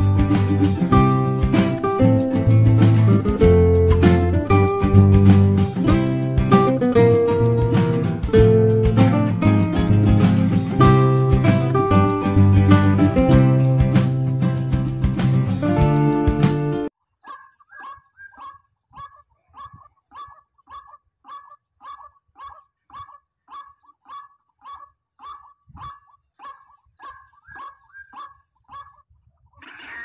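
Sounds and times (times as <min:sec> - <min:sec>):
bird call from speaker: 0:29.6 - 0:30.0.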